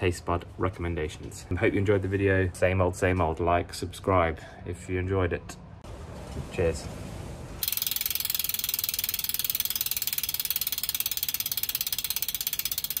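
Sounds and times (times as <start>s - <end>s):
rapid mechanical clicking: 7.6s - 13.0s.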